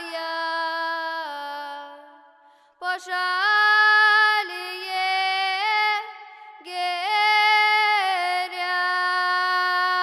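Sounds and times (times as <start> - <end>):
girl singing unaccompanied folk song: 2.8 - 10.0.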